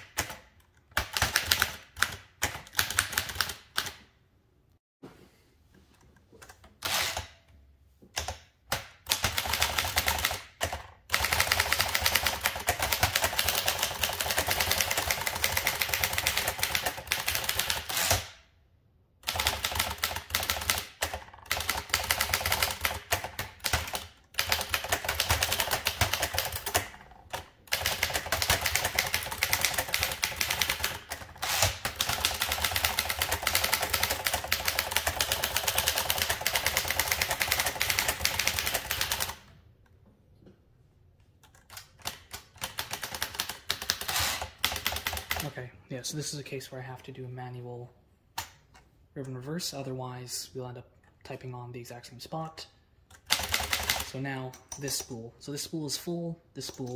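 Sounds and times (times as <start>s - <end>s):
typewriter fast typing: 1.0s - 3.9s, 8.7s - 18.2s, 19.2s - 39.4s, 41.8s - 45.5s, 53.3s - 54.2s.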